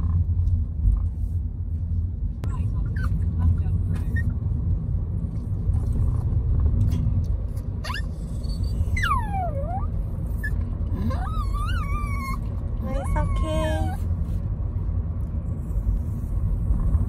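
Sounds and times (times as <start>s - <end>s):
car road rumble: 0.0s - 17.0s
dog whining: 7.8s - 14.1s.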